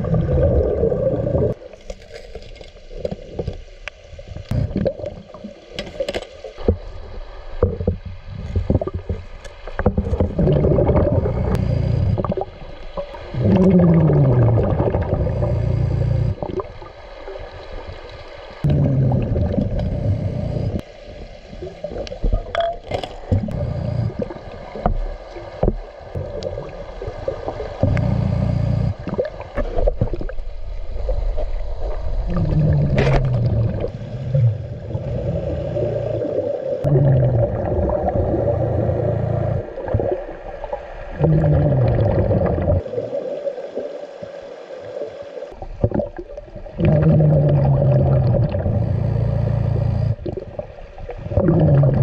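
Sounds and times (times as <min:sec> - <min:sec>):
exhaled bubbles rumbling: 0:00.0 - 0:01.6, 0:04.4 - 0:05.6, 0:06.6 - 0:17.9, 0:18.6 - 0:20.8, 0:21.5 - 0:43.2, 0:45.6 - 0:52.0
low groaning tones: 0:10.2 - 0:12.4, 0:13.4 - 0:16.4, 0:27.8 - 0:29.0.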